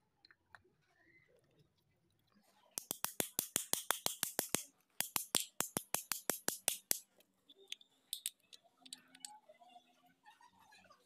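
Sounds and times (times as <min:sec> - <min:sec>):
fast even clicking: 0:02.8 - 0:07.0
metal parts clicking: 0:08.1 - 0:09.3.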